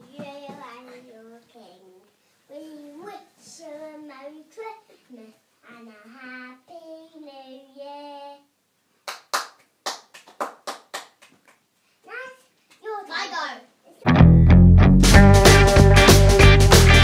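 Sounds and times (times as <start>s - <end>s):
child singing: 0.0s - 8.5s
hands clapping: 9.0s - 11.6s.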